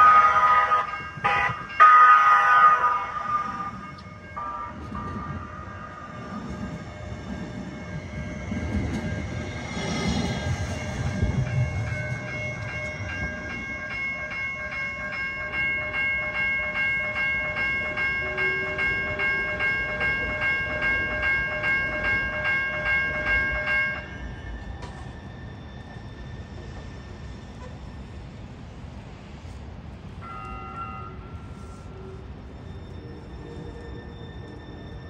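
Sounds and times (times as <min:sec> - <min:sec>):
electronic crossing warning bell: 0:00.0 - 0:09.5, 0:10.4 - 0:24.2, 0:30.2 - 0:32.5
light rail train rumbling past: 0:00.0 - 0:35.0.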